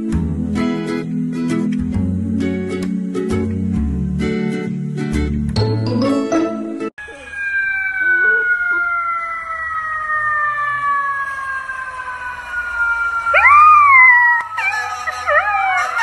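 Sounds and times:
puppy howling: 7.0 - 11.1, 13.3 - 16.0
siren wailing: 7.0 - 16.0.

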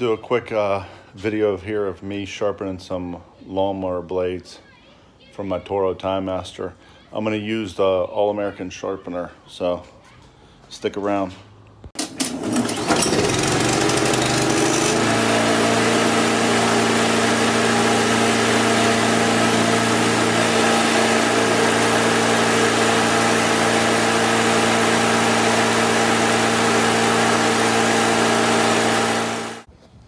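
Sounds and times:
small engine running steadily: 12.2 - 29.7.

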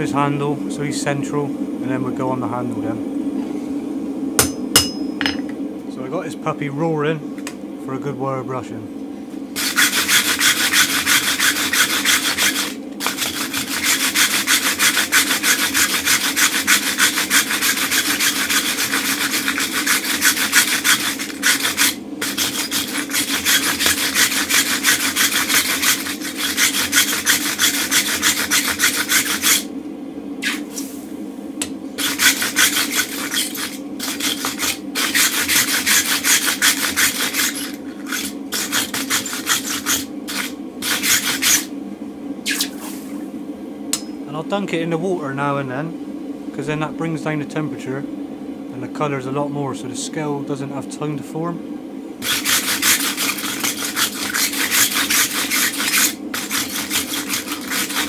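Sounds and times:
wire brush scraping metal: 9.6 - 29.7, 32.0 - 41.7, 52.2 - 58.0.

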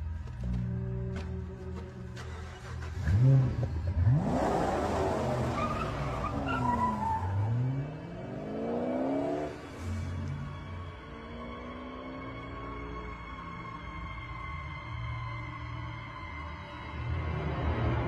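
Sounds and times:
tyres skidding: 0.0 - 13.2
car engine revving: 0.2 - 13.7.

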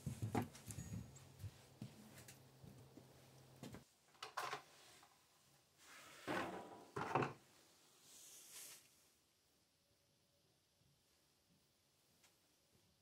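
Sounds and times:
soft hiss: 7.5 - 9.4.

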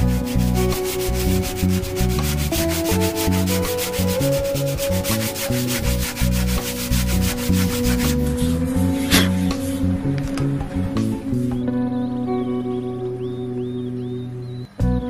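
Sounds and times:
sandpaper rasping on wood: 0.0 - 9.8
background music: 0.0 - 15.0.

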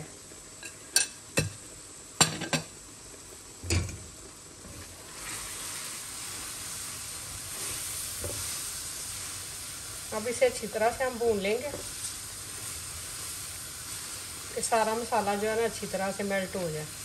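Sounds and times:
masala sizzling in hot oil: 0.0 - 17.0
spatula stirring and frying: 4.6 - 17.0.

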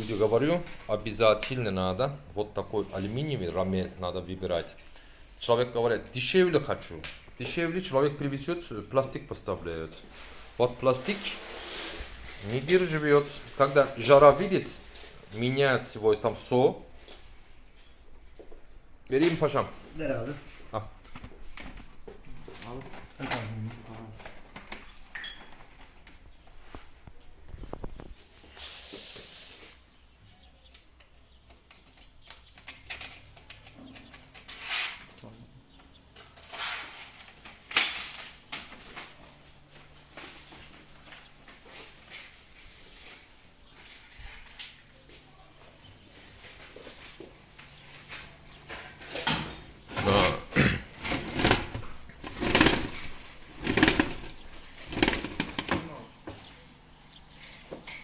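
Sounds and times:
roller shutter creaking and scraping: 9.4 - 17.6, 32.6 - 35.2, 36.0 - 39.4, 47.7 - 56.6
metal shutter slats clicking and scraping: 36.2 - 38.5, 51.0 - 55.9.

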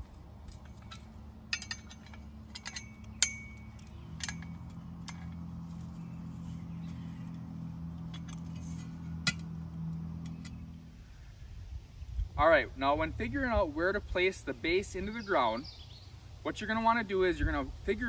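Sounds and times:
steady low hum: 0.0 - 18.0
wrench clinking on metal bolts: 0.5 - 5.4, 8.0 - 9.5.

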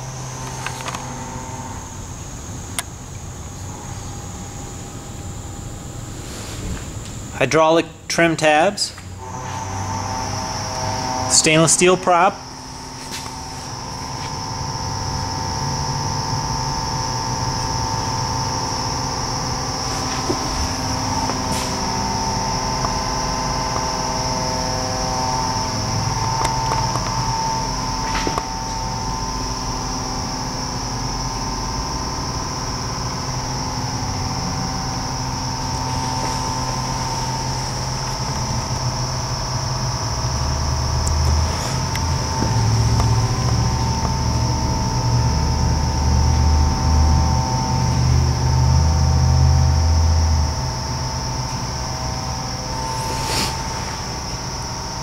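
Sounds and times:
high-pitched whine: 0.0 - 55.0
mechanical hum: 0.0 - 55.0
steady tones: 7.2 - 46.1, 50.3 - 55.0
deep rumble: 49.8 - 55.0.

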